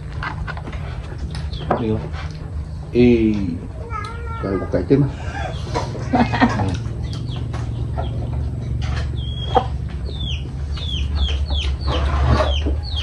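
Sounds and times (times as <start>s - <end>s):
steady low hum: 0.0s - 13.0s
chick peeping: 6.7s - 13.0s.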